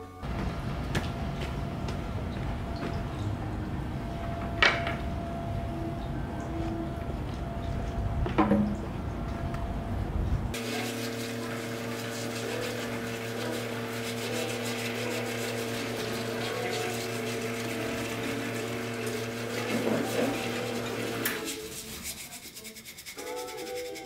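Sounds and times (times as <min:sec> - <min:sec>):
espresso machine pump humming: 0:10.5 - 0:21.4.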